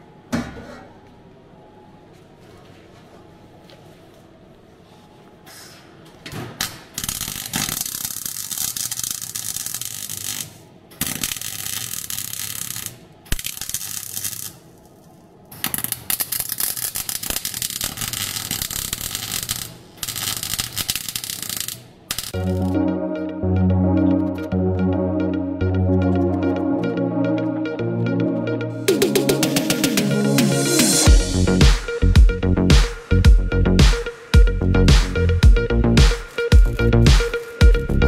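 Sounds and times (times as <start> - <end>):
welder arc crackling: 7.0 - 14.9, 15.5 - 22.4.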